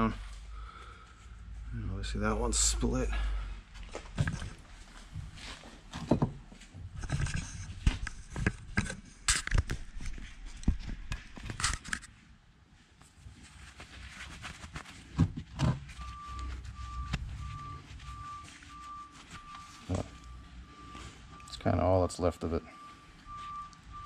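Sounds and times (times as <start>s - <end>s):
short electronic beeps: 16.0s - 24.0s.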